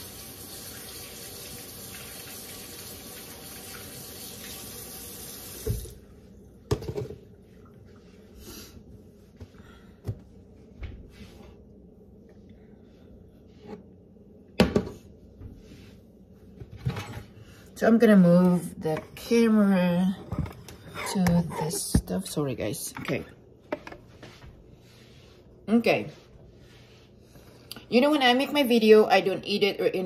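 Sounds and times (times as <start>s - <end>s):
tap running into sink: 5.5s - 6.0s.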